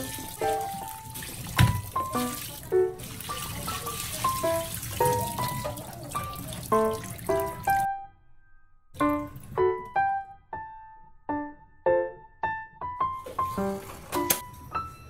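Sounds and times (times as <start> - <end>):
tap water splashing through colander: 0.0 - 7.9, 9.0 - 10.0
light piano music: 0.0 - 15.0
knock: 1.6 - 1.9.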